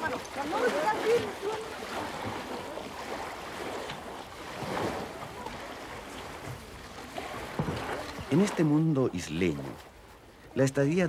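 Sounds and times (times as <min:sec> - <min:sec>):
small waves washing: 0:00.0 - 0:11.0.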